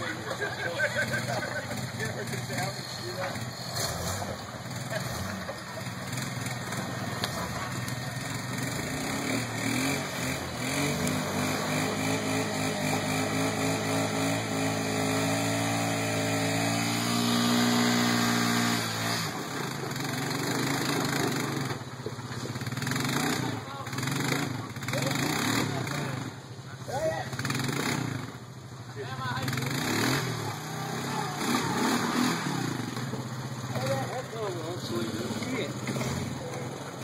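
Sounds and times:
engine revving under load: 0:00.0 - 0:26.4, 0:27.2 - 0:28.5, 0:29.4 - 0:37.0.

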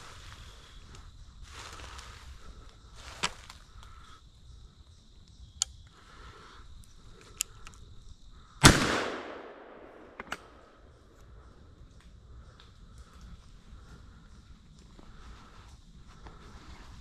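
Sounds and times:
faint clicks: 0:05.2 - 0:06.0, 0:06.8 - 0:07.8, 0:11.9 - 0:13.5
shotgun shot echoing: 0:08.6 - 0:10.7.

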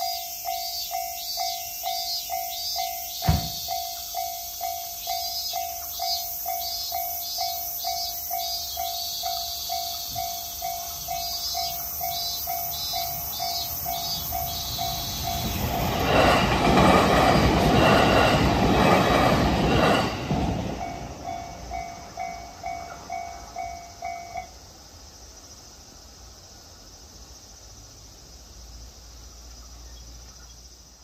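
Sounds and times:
crossing warning bell dinging: 0:00.0 - 0:24.6
train passing over crossing: 0:00.0 - 0:25.4.

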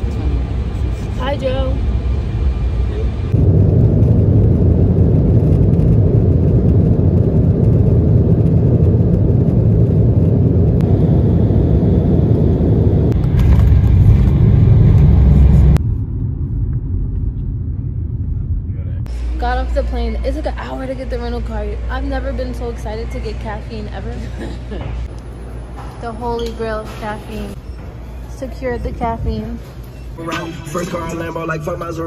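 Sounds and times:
car road noise: 0:00.0 - 0:19.6
jet engines rumbling in cabin: 0:00.0 - 0:32.0.

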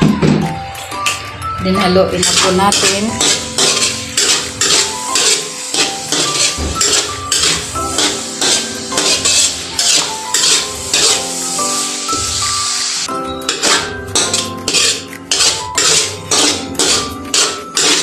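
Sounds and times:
background music: 0:00.0 - 0:18.0
metal spatula scraping a wok: 0:02.2 - 0:12.2, 0:13.5 - 0:18.0.

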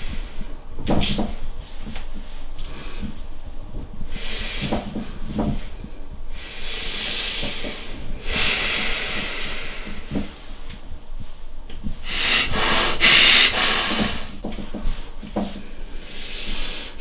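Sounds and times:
person breathing heavily: 0:02.6 - 0:10.8, 0:11.9 - 0:14.4, 0:15.5 - 0:17.0.

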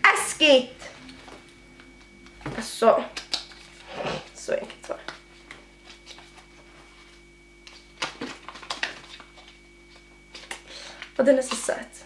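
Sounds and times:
faint steady hum: 0:00.0 - 0:12.0
packaging clicks and rustles: 0:07.1 - 0:11.7.

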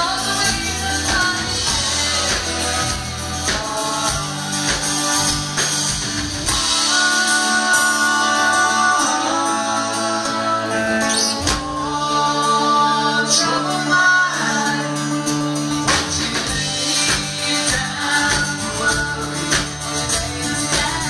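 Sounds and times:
live country band: 0:00.0 - 0:21.0
person singing long notes: 0:06.5 - 0:21.0.

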